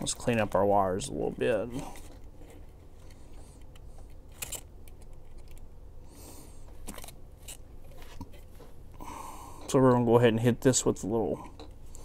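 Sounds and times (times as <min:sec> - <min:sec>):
hands handling wires: 0:00.0 - 0:05.7, 0:06.6 - 0:09.0.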